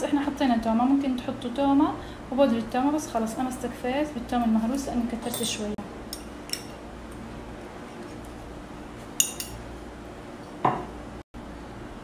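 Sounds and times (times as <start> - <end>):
spoon clinking on ceramic dish: 5.2 - 5.6, 9.2 - 9.6.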